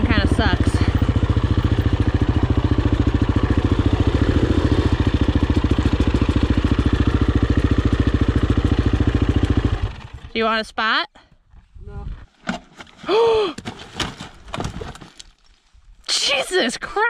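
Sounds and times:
dirt bike engine at low revs: 0.0s - 10.4s.

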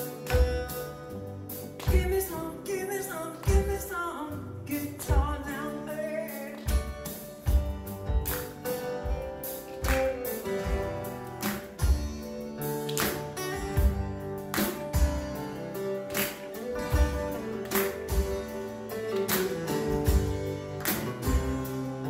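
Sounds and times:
acoustic guitars playing: 0.0s - 22.0s
drum kit beat: 0.0s - 22.0s
person singing: 1.8s - 7.0s.

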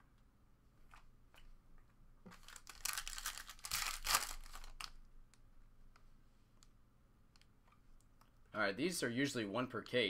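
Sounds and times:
foil wrapper tearing and crinkling: 2.4s - 5.0s.

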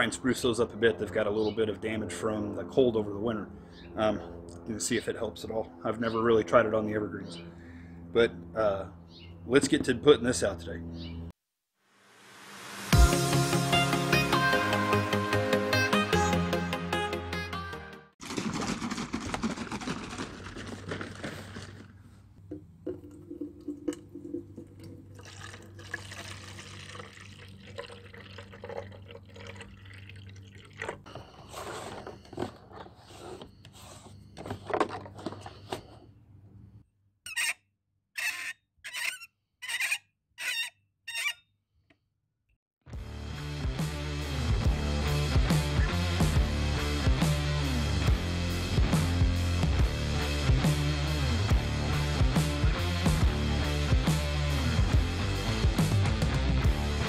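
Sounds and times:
liquid pouring and splashing: 22.8s - 31.1s.

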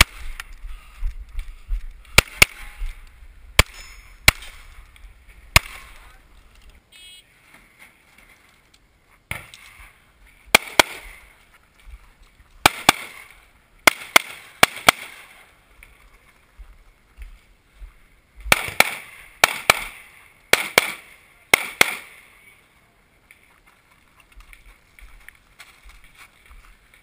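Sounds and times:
pistol gunshots: 2.2s - 2.8s, 3.6s - 4.6s, 5.5s - 6.0s, 10.5s - 11.2s, 12.6s - 15.4s, 18.5s - 22.2s.

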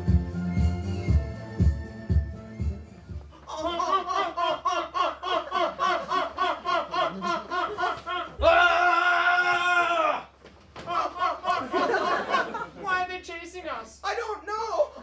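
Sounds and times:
beat-driven music: 0.0s - 3.3s
person laughing: 3.4s - 8.4s.

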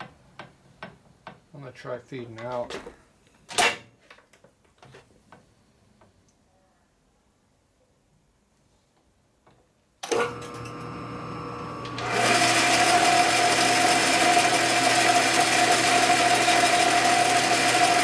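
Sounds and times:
lathe spindle humming: 10.1s - 18.0s.

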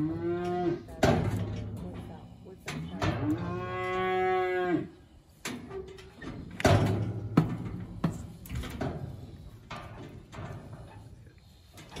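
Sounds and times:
calf mooing: 2.8s - 5.0s.

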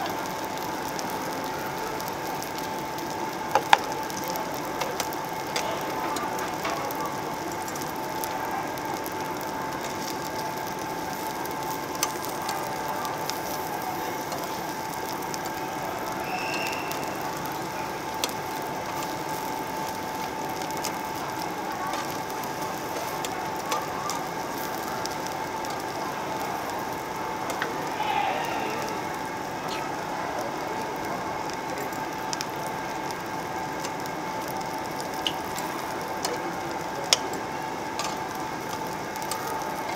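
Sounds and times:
meat sizzling on a grill plate: 0.0s - 39.9s
metal tongs clicking on grill: 3.5s - 8.3s, 8.9s - 15.5s, 17.3s - 26.0s, 27.5s - 27.7s, 33.8s - 39.9s.

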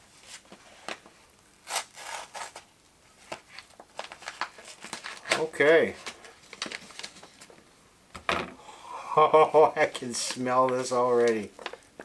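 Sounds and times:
paper crinkling: 0.1s - 7.6s, 10.1s - 12.0s
paper bag being cut open: 1.6s - 2.7s.

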